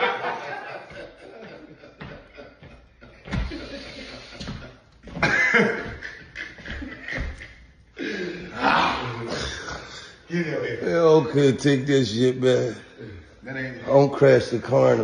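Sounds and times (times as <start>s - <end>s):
man laughing: 0.0s - 7.6s.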